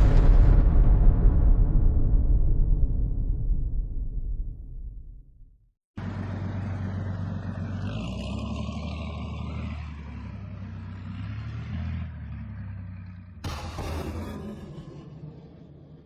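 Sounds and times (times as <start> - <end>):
truck engine running: 6.0 - 13.9.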